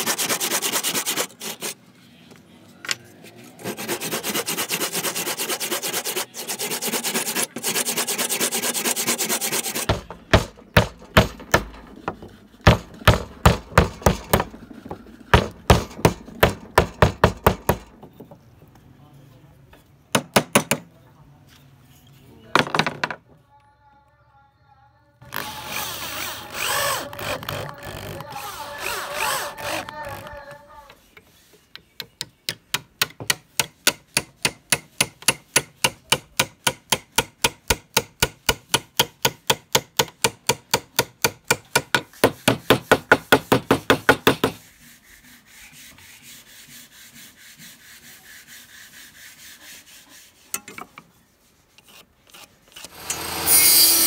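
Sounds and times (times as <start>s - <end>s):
rough scraping: 25.2s - 30.8s.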